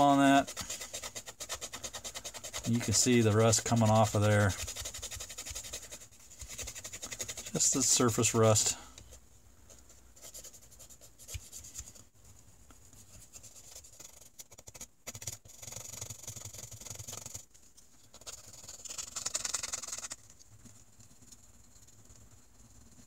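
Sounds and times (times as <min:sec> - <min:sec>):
stick scratching on knife blade: 0:00.0 - 0:08.5, 0:13.4 - 0:17.4.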